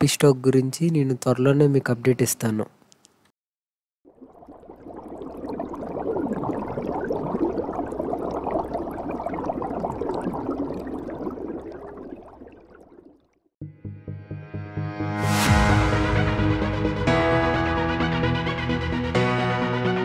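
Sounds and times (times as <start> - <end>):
underwater bubbling: 4.1 - 13.5.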